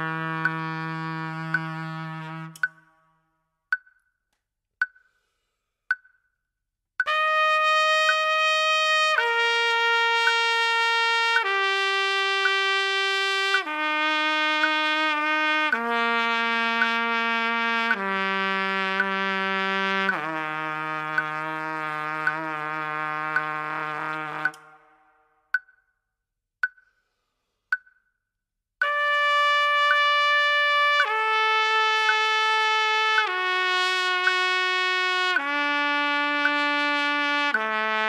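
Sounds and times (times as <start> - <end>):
trumpet playing long notes: 0.0 - 3.0, 7.0 - 25.4, 28.8 - 38.0
clicks keeping time: 1.5 - 1.8, 2.5 - 3.0, 3.7 - 5.1, 5.9 - 6.2, 24.4 - 24.8, 25.5 - 25.9, 26.6 - 26.9.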